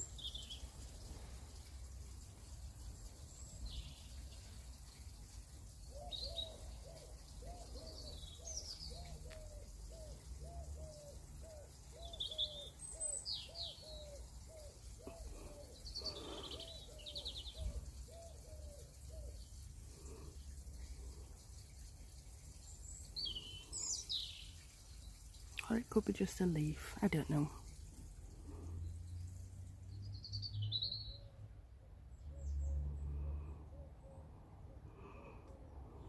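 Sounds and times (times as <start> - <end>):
small birds chirping: 0.0 - 36.0
pigeon cooing: 5.9 - 19.4.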